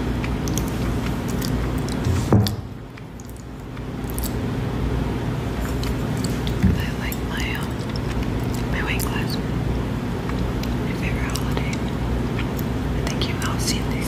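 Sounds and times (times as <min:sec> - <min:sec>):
steady low hum: 0:00.0 - 0:14.0
wet lip and tongue clicks: 0:00.2 - 0:04.4, 0:05.6 - 0:09.2, 0:10.2 - 0:13.2.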